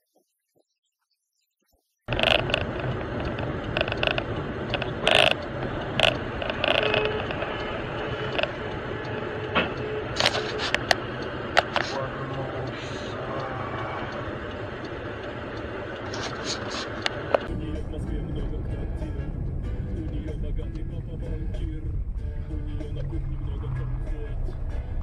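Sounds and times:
sharp clicks and knocks: 2.1 - 12.0, 14.0 - 17.6
car engine and road noise: 2.1 - 25.0
low hum: 2.1 - 25.0.

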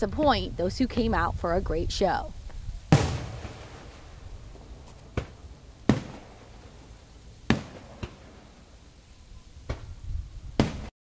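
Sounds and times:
fireworks bursting with booms: 2.9 - 8.8, 9.6 - 10.9.

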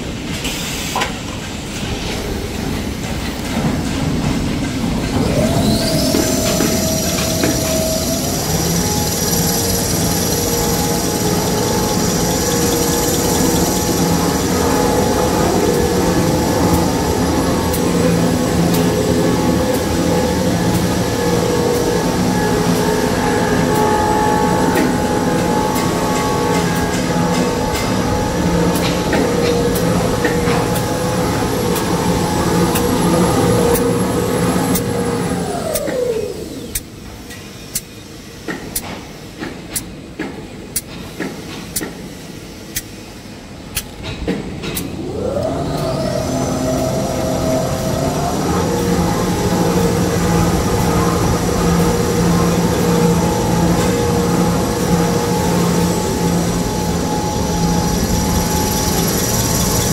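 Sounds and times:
paper machine humming: 5.2 - 36.8, 44.9 - 59.9.

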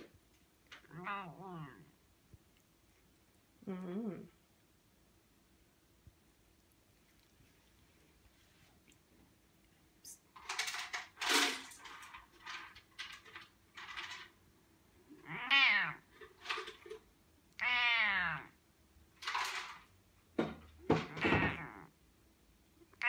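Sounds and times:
cat meowing: 0.8 - 1.9, 15.2 - 16.1, 17.6 - 18.6, 21.1 - 21.9.

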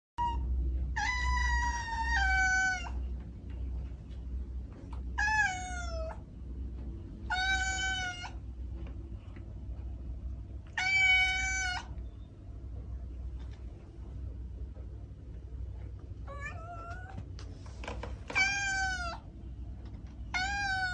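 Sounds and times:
low rumble: 0.2 - 20.9
kitten meowing: 10.8 - 11.9, 18.3 - 19.2, 20.3 - 20.9.

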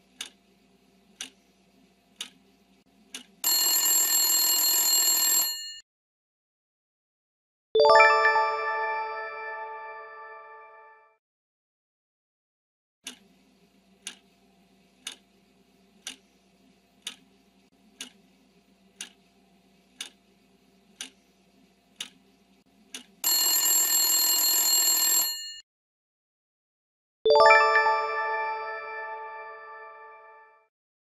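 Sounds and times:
clock ticking: 1.2 - 1.4, 2.2 - 2.4, 3.1 - 3.4, 14.0 - 14.2, 15.0 - 15.2, 16.0 - 16.2, 17.0 - 17.2, 18.0 - 18.2, 19.0 - 19.2, 20.0 - 20.2, 21.0 - 21.2, 22.0 - 22.2, 22.9 - 23.2
alarm bell ringing: 23.2 - 25.6.

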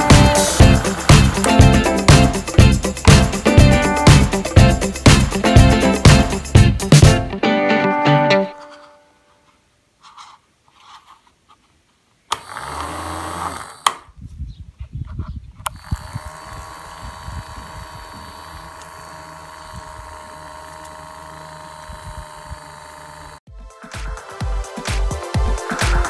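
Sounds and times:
small motor fan whirring: 12.3 - 14.1, 15.6 - 23.4.

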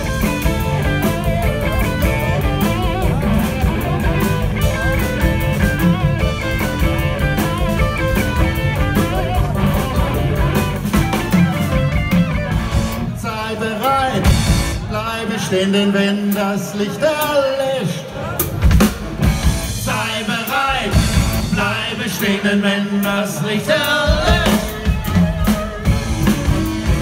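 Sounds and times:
bass guitar: 0.0 - 15.2, 18.2 - 22.4, 24.0 - 27.0
drum kit: 0.0 - 15.4, 18.2 - 27.0
electric guitar lead line: 0.0 - 15.4, 24.1 - 27.0.

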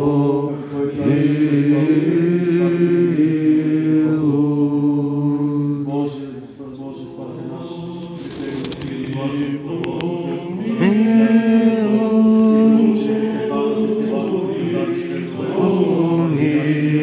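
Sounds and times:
unaccompanied choral chant: 0.0 - 17.0.

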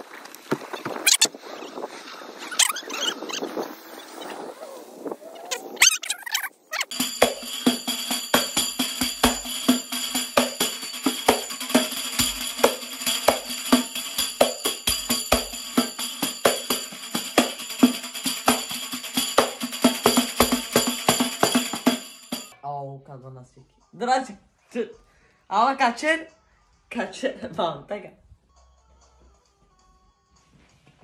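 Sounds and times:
frame drum with jingles: 6.9 - 22.6.

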